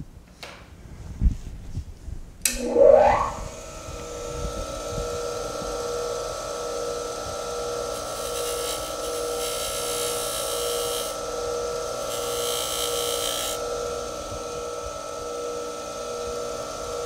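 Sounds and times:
bench buffer motor humming: 5.0 - 17.0.

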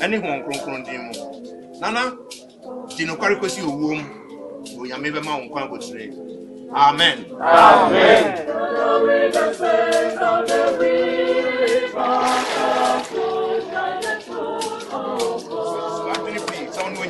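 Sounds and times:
group singing unaccompanied: 0.0 - 17.0
water splash: 12.0 - 13.2.

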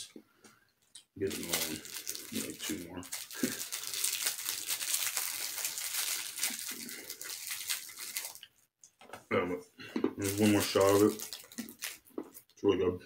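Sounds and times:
candies rattling in container: 1.2 - 8.5, 10.2 - 12.0.

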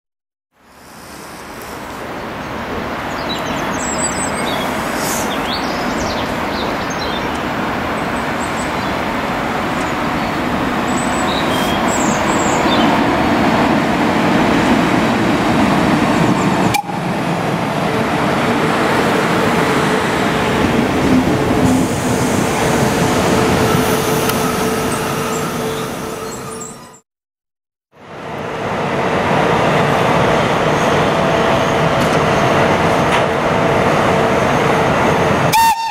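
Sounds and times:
locomotive humming: 0.7 - 27.0, 28.0 - 35.9
birds chirping: 1.4 - 13.2, 24.9 - 27.0
train wheels and motors rumbling: 28.1 - 35.6.

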